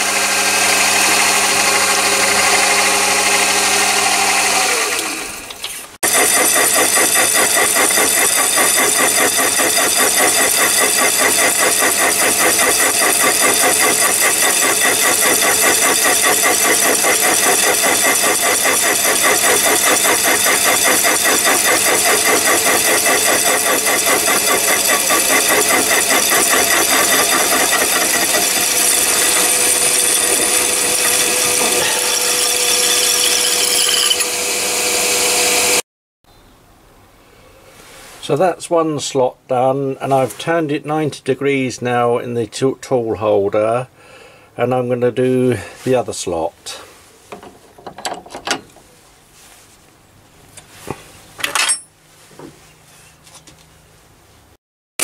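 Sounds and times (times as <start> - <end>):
lathe saw cutting metal: 0.0 - 35.8
saw teeth chatter: 6.0 - 34.4.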